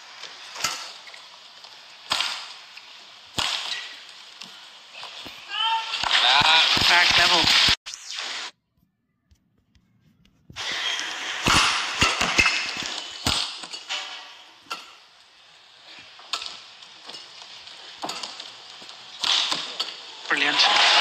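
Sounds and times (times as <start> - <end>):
arena crowd noise: 20.3 - 21.0.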